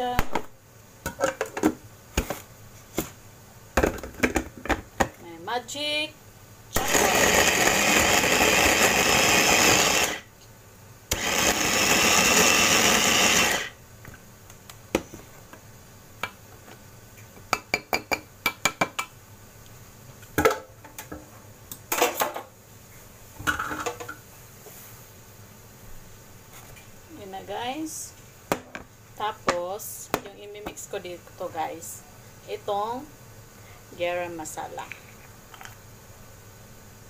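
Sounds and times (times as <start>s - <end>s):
electric food chopper running: 6.8s - 10.3s, 11.1s - 13.8s.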